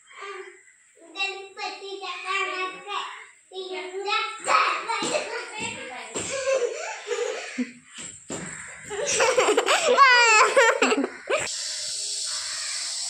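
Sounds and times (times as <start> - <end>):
child laughing and squealing: 6.3 - 7.7, 8.9 - 11.5.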